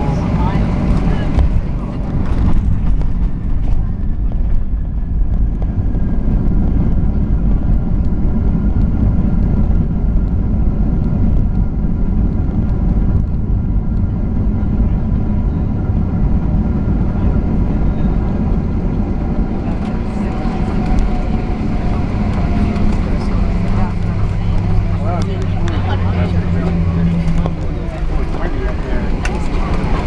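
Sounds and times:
faint jet engine whine: 0.0s - 30.0s
low rumble of wheels on runway: 0.0s - 30.0s.

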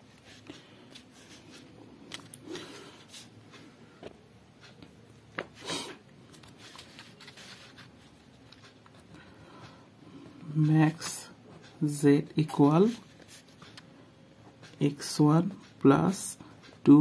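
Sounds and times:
paper sheets rustling: 6.3s - 8.2s.

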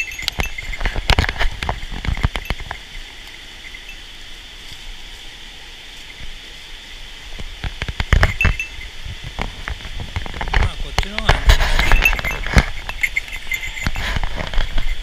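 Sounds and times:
sharp clinks and knocks: 0.0s - 4.1s, 7.7s - 15.0s.

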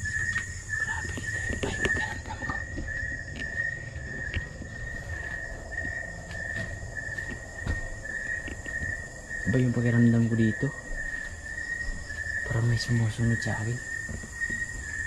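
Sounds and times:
night insects trilling: 0.0s - 15.0s.

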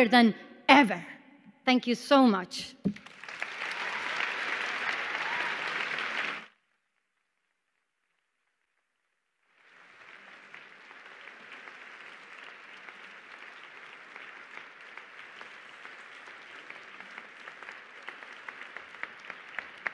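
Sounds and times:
audience applause: 2.9s - 6.6s, 9.5s - 19.9s.

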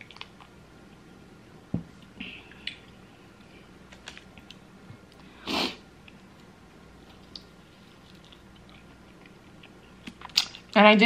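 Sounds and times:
sharp sniff through nose: 5.4s - 5.8s
mouth and chewing clicks: 7.1s - 10.8s.

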